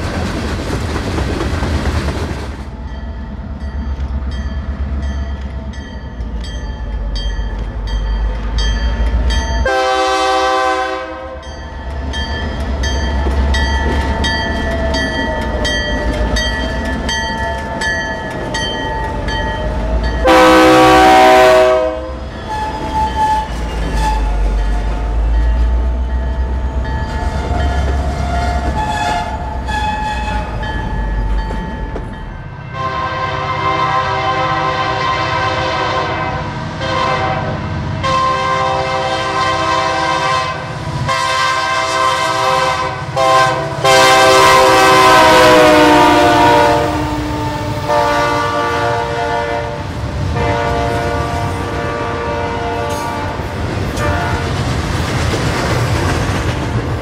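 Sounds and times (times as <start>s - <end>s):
locomotive air horn blasts: 9.6s - 11.5s, 20.2s - 24.6s, 27.5s - 30.6s, 32.7s - 54.6s.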